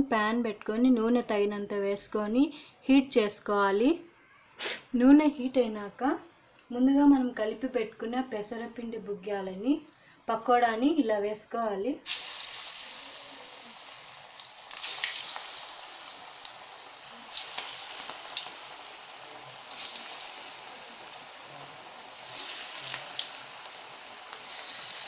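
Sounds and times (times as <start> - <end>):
batter sizzling in hot oil: 12.0 - 25.0
oil crackling flare-ups: 12.0 - 25.0.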